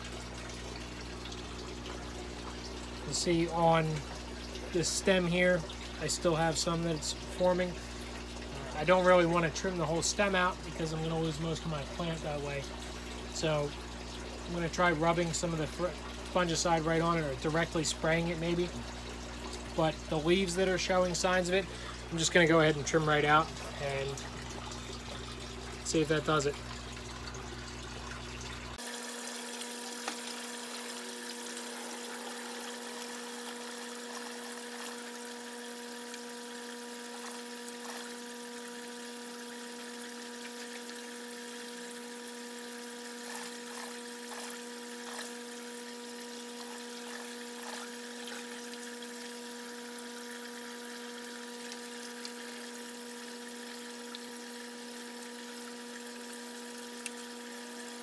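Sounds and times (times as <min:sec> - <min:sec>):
electric motor hum: 0:17.0 - 0:58.0.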